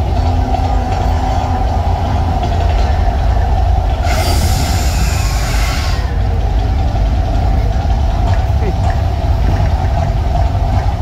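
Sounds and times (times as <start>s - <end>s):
deep rumble: 0.0s - 11.0s
flame jets rushing hiss: 2.3s - 6.6s.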